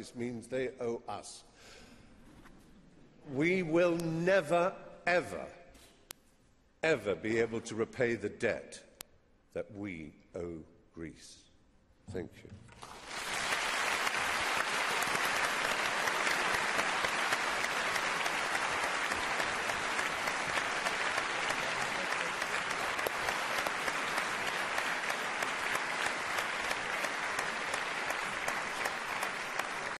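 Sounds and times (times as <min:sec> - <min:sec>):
large audience applauding: 0:12.8 - 0:30.0.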